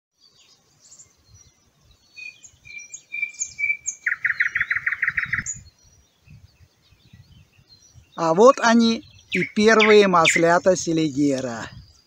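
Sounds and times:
songbirds singing and chirping: 0:00.2 - 0:12.0
bird rapid trill: 0:02.0 - 0:06.3, 0:09.0 - 0:10.6.

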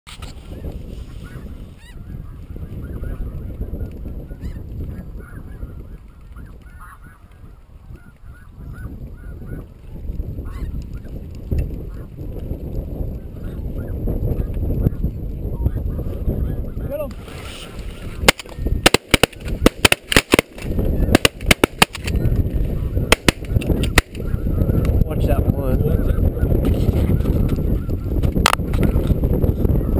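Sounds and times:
wind rumbling on microphone: 0:00.1 - 0:29.9
geese honking: 0:05.2 - 0:07.3
shotgun fire: 0:18.2 - 0:22.2, 0:23.1 - 0:24.2.

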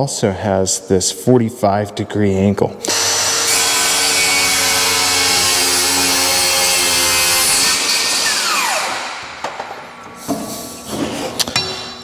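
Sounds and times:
circular saw cutting wood: 0:02.9 - 0:09.4.

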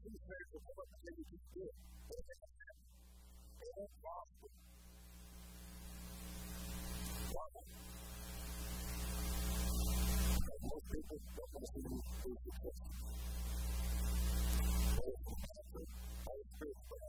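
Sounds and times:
man's voice: 0:00.0 - 0:02.8, 0:03.6 - 0:04.5, 0:07.1 - 0:07.7, 0:10.4 - 0:13.2, 0:14.8 - 0:17.0
electrical mains hum and hiss: 0:00.0 - 0:17.0.

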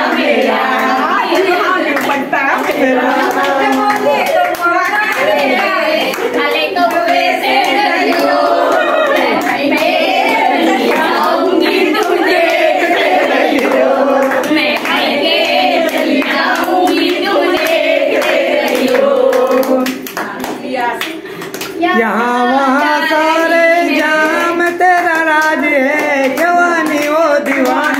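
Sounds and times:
women singing together: 0:00.0 - 0:27.9
hands clapping in time: 0:23.3 - 0:27.9.

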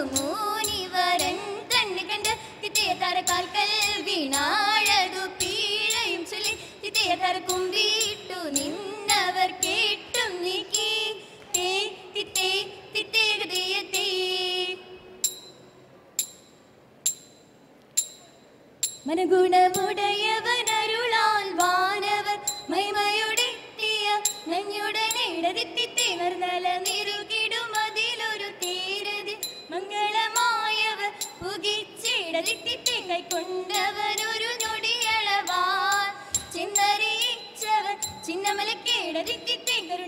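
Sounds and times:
women singing in unison: 0:00.0 - 0:15.0, 0:19.1 - 0:40.0
sharp percussive strikes: 0:15.2 - 0:19.1.

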